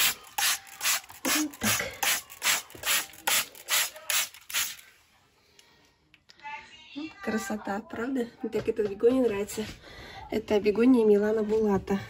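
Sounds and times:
spray bottle squirts: 0.0s - 4.8s.

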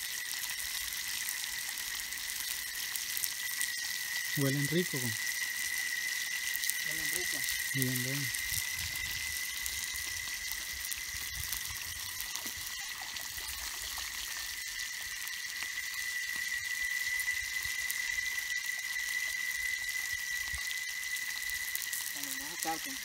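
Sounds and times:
fish sizzling in oil: 0.0s - 23.0s
high-pitched drone: 2.0s - 23.0s.

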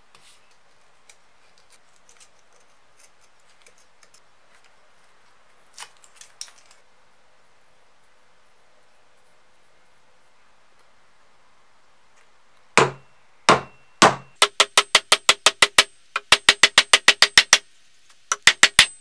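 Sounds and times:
fingers clicking and scratching tape: 1.0s - 4.8s, 14.4s - 17.6s, 18.3s - 18.9s.

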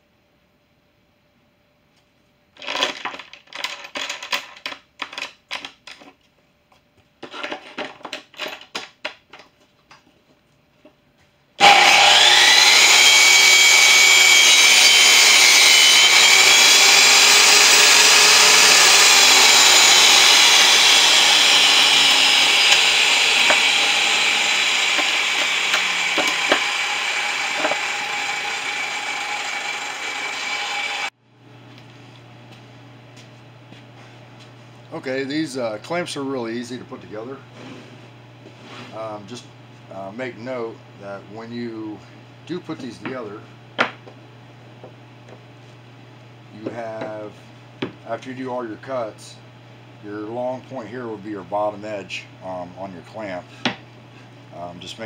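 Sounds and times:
table saw cutting plywood: 11.6s - 31.1s.

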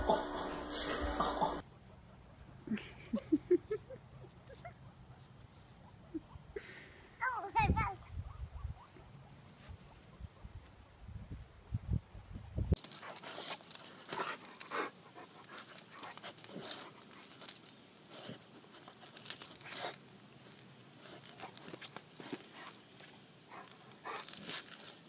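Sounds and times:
dog sniffing and snuffling: 12.8s - 17.4s, 18.0s - 24.7s
steady high hiss: 12.8s - 25.0s.

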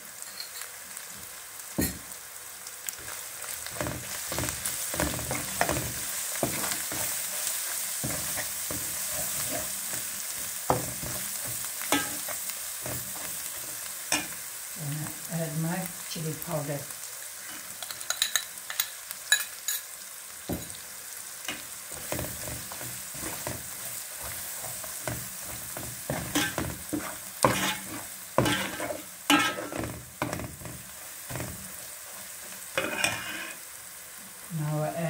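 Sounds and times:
onions sizzling in hot oil: 0.0s - 35.0s
spoon scraping and clinking pot: 0.2s - 0.7s, 10.8s - 13.3s, 17.5s - 19.9s, 26.1s - 29.9s, 32.8s - 33.6s.

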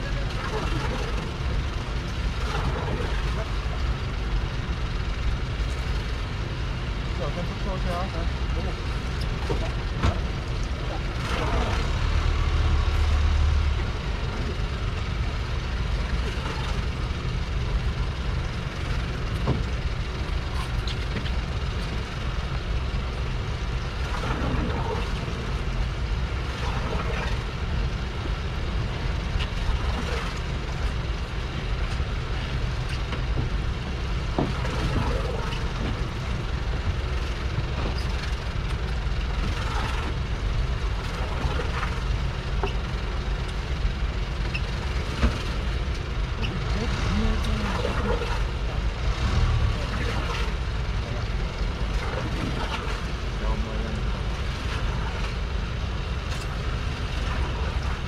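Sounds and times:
boat engine rumbling: 0.0s - 58.0s.

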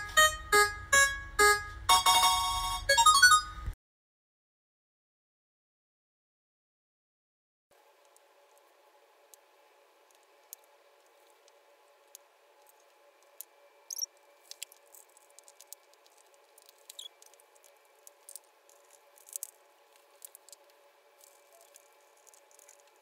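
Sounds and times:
low steady hum: 0.0s - 3.8s, 7.8s - 23.0s
short squeaks: 13.9s - 14.1s, 16.8s - 17.2s.

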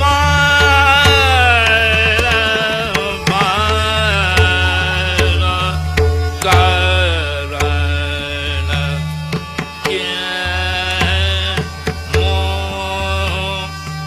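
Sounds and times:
man singing long gliding notes: 0.0s - 14.0s
drum strokes: 0.4s - 8.1s.

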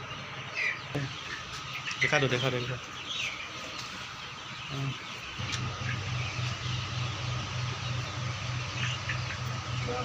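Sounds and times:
chicks peeping: 0.0s - 10.0s
pulsing mechanical hum: 3.4s - 10.0s.

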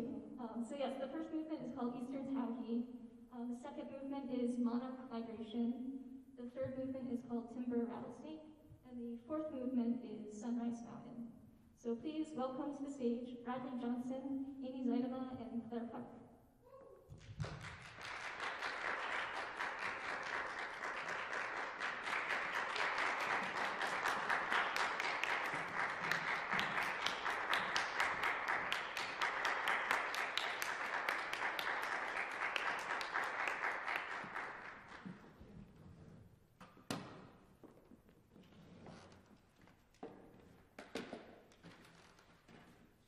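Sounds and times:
audience applauding: 17.2s - 35.2s.

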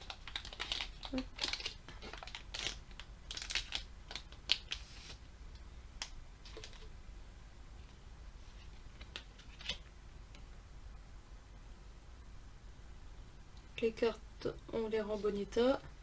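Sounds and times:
foil wrapper crinkling: 0.0s - 5.2s.

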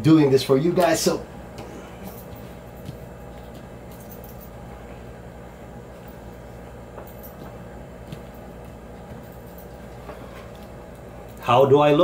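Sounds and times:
low room hum: 0.0s - 12.0s
helmet rustles and taps: 0.8s - 4.6s, 6.9s - 11.1s.

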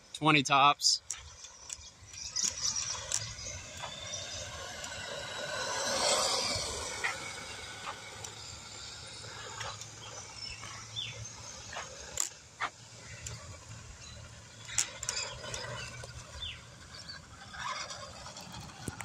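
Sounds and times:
bird chirps: 1.3s - 4.7s, 9.3s - 11.9s, 13.0s - 17.2s.

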